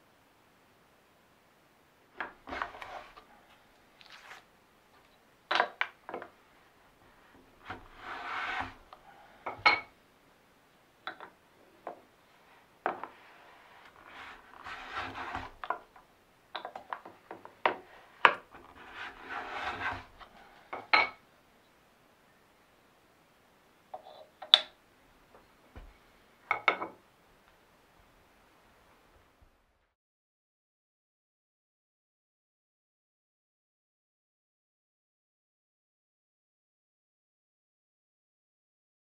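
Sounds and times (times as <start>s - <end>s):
brush sweeping on wooden board: 2.4s - 4.5s, 7.1s - 9.2s, 13.1s - 15.8s, 17.8s - 20.7s.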